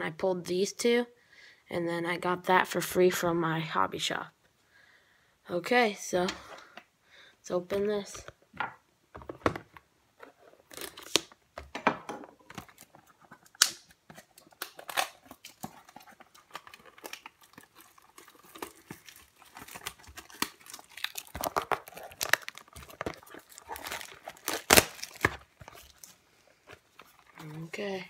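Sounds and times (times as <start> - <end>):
packaging crinkling and ripping: 10.4 - 11.4, 12.4 - 28.0
cardboard rustling: 12.3 - 28.0.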